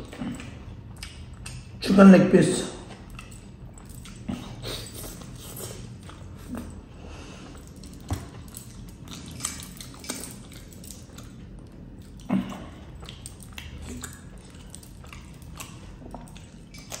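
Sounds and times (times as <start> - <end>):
wet mouth clicks and smacks: 0.0 - 1.8, 8.1 - 17.0
chewing chicken: 0.0 - 2.0, 2.6 - 17.0.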